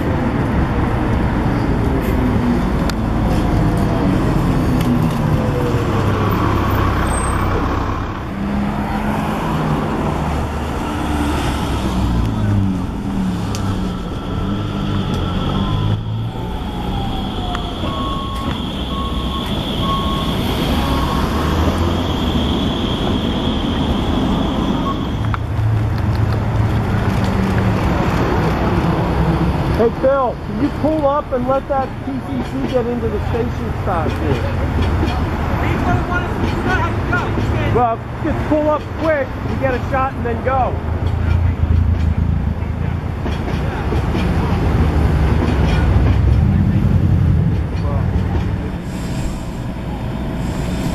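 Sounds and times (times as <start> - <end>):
bus and cars passing: 0.0 - 50.9
high steady whine: 48.7 - 50.9.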